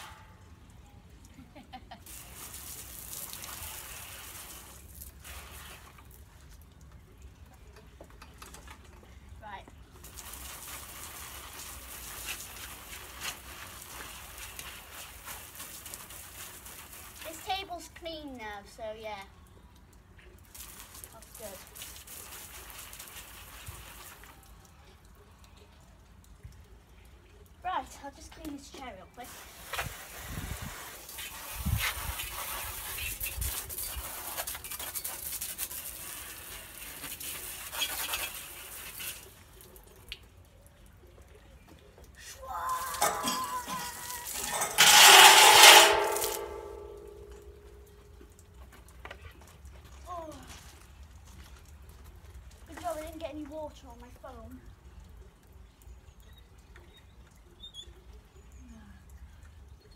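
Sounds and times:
water spattering on furniture: 1.3 - 7.5, 9.8 - 18.4, 20.4 - 24.7, 28.5 - 40.6, 41.8 - 55.5.

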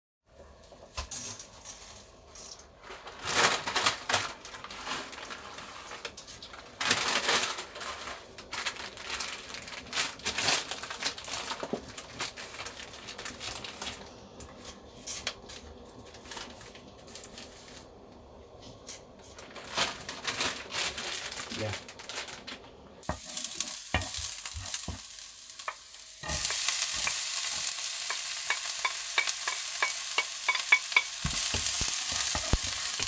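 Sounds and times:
plastic packet crinkling: 2.8 - 14.0, 19.4 - 33.0
dry spaghetti clattering in a pot: 23.0 - 33.0.

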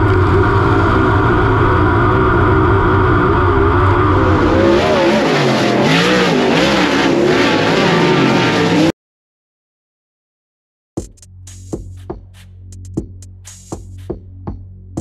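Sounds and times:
race car engine revving: 0.0 - 8.9.

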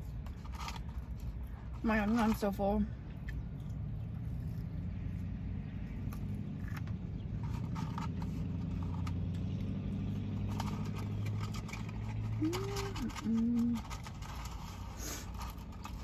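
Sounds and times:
vehicle idling hum: 0.0 - 16.0.

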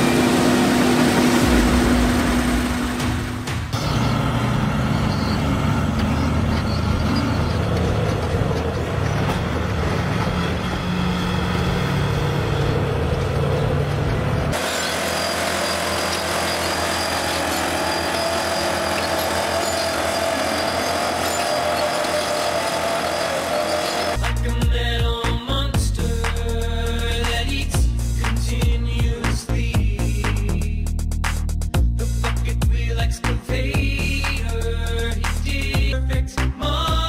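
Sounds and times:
thin noisy mechanical sound: 0.0 - 24.2
bulldozer diesel engine under load: 0.0 - 24.4.

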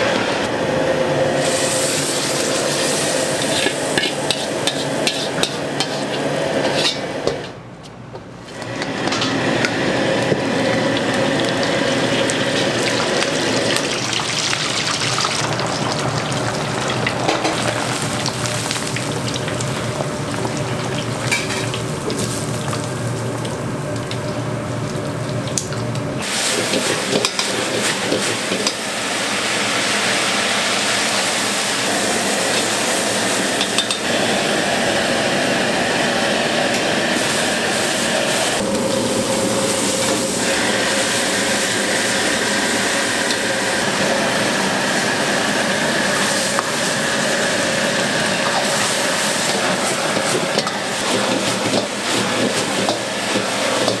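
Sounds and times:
food sizzling in a wok: 1.3 - 7.4, 8.7 - 25.3, 26.2 - 54.0
hot oil bubbling: 1.4 - 6.0, 8.6 - 54.0
metal ladle scraping a wok: 3.5 - 7.1.

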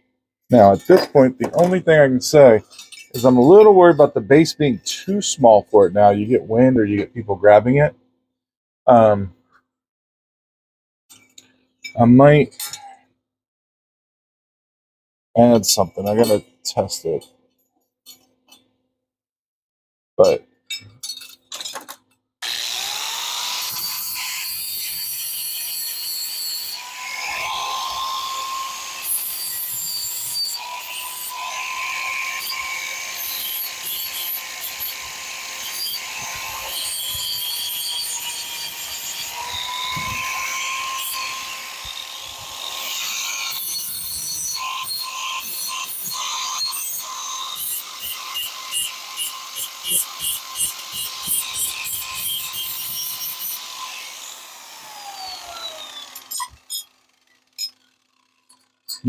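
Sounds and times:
disc grinding on steel: 22.4 - 58.1
angle grinder whining: 22.4 - 59.0.

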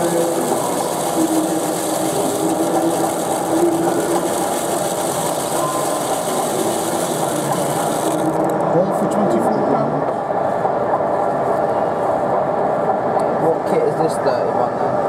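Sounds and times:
small motor running: 0.0 - 8.6.

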